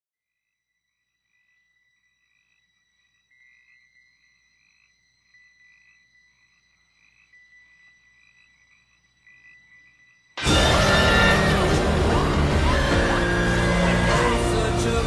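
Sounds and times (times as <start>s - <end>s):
frogs chirping: 0.4s - 15.0s
horror film music: 10.4s - 15.0s.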